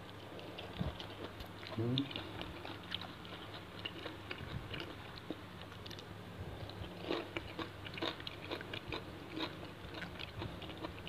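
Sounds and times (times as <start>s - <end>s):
faint low hum: 0.0s - 11.0s
wet crunchy chewing: 0.0s - 11.0s.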